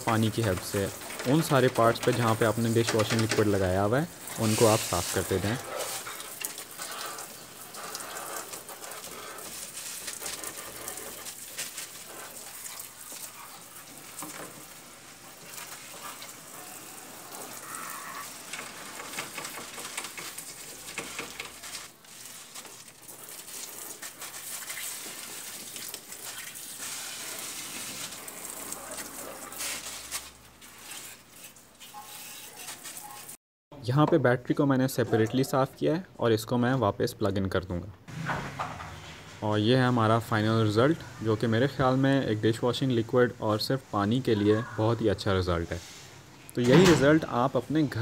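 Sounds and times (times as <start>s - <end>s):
brush scrubbing: 0.0s - 33.4s
hose water spraying: 0.0s - 33.4s.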